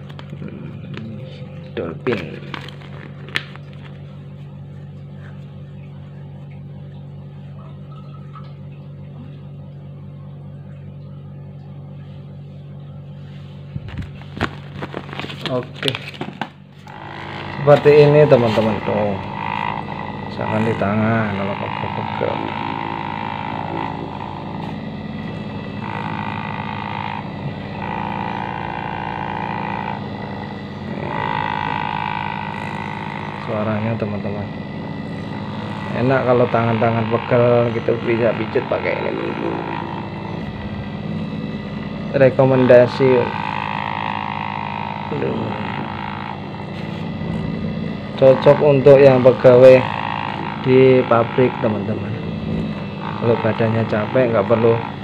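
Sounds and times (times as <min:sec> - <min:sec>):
higher buzz: 0:00.0 - 0:55.0
steady low hum: 0:00.0 - 0:55.0
paper rustling: 0:02.1 - 0:04.2, 0:13.8 - 0:16.9.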